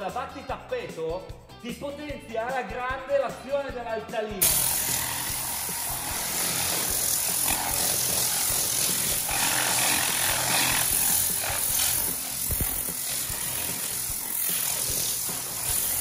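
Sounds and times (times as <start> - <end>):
air spray gun hissing: 4.4 - 16.0.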